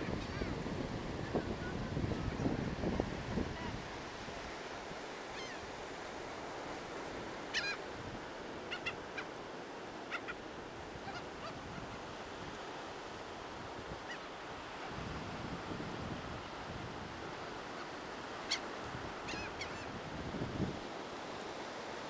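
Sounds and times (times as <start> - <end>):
wind: 0.0 - 22.0
gulls calling: 7.4 - 7.9, 8.6 - 9.4, 10.0 - 12.0, 17.8 - 19.9.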